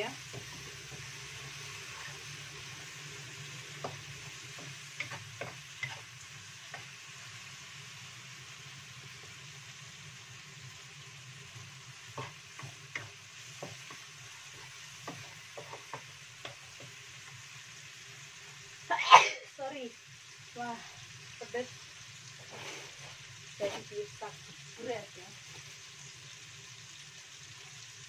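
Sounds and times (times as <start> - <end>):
spice paste sizzling in a wok: 0.0 - 28.0
wooden spatula scraping pan: 3.8 - 6.1, 12.1 - 16.9, 22.4 - 24.0.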